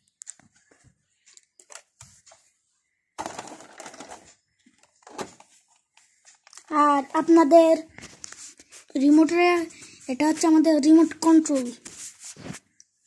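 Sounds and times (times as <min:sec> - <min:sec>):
plastic toy clicks and knocks: 0:03.2 - 0:05.5
rustling scrape: 0:08.0 - 0:10.6, 0:11.2 - 0:12.8.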